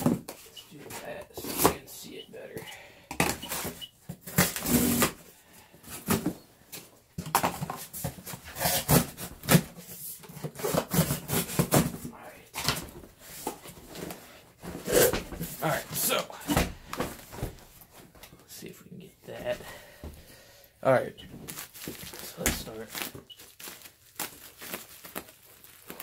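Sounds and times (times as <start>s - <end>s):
plastic and foil wrapping rustling: 20.8s - 26.0s.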